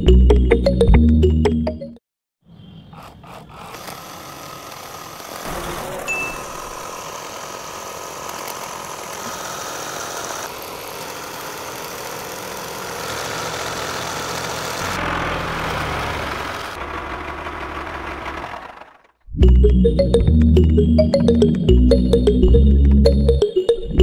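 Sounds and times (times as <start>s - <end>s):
background music: 0.0s - 2.0s, 19.3s - 24.0s
small electric motor whirring: 2.9s - 19.2s.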